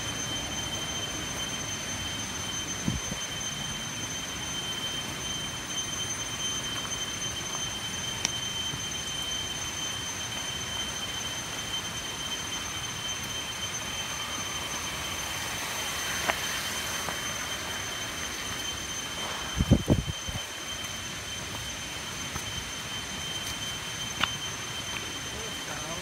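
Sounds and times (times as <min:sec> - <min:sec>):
constant hiss: 0:00.0 - 0:26.0
high-pitched insect drone: 0:00.0 - 0:26.0
footsteps on loose stones: 0:23.4 - 0:25.2.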